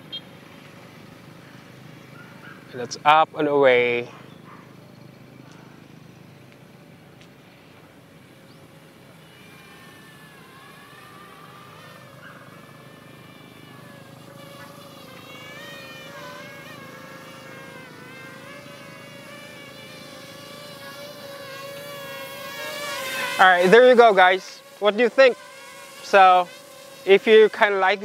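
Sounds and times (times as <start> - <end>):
quadcopter propellers whining: 0.0 - 28.0.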